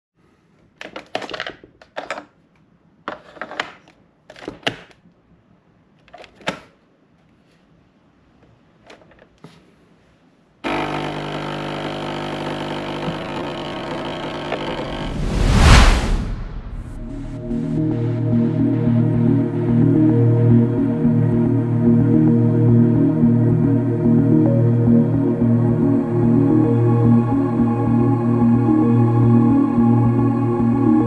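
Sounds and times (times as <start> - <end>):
coffee machine pump buzzing: 10.6 - 14.8.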